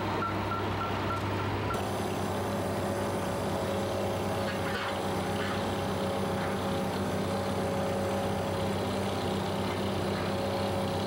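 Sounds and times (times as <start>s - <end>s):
heavy machinery engine humming: 0.0s - 11.0s.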